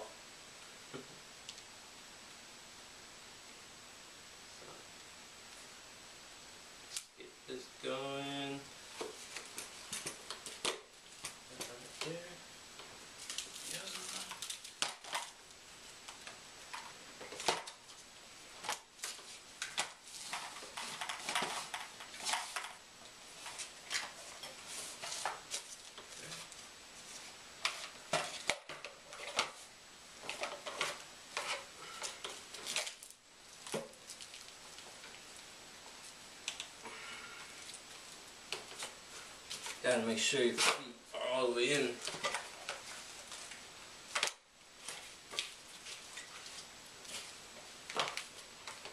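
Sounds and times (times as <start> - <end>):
strap rustles: 13.0 - 40.9, 41.9 - 48.9.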